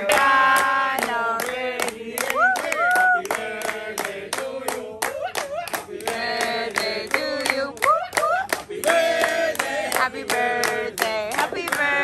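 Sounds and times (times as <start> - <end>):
group of people singing: 0.0 - 12.0
hands clapping in rhythm: 0.0 - 12.0.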